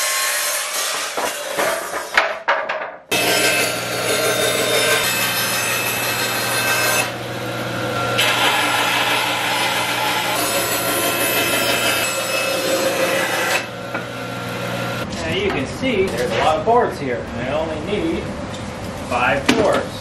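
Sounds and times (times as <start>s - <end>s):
saw cutting wooden boards: 0.0s - 2.4s, 3.1s - 15.0s.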